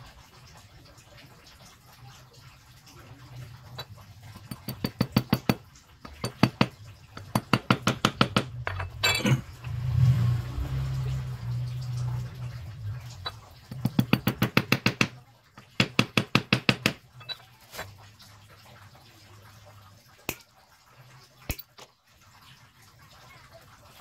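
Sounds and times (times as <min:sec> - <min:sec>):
rapid metal taps: 0:04.4 - 0:08.8, 0:13.2 - 0:17.4.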